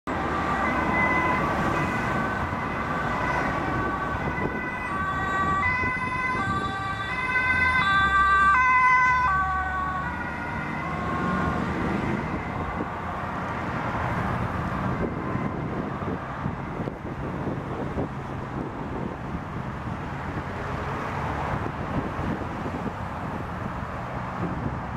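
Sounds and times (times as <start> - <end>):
two-tone siren: 0.1 - 13.5, 14.6 - 17.2
road traffic passing: 0.1 - 24.9.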